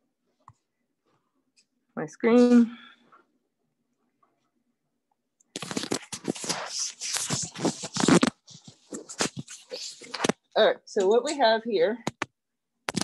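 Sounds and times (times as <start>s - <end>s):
handling noise on microphone: 5.6s - 10.4s.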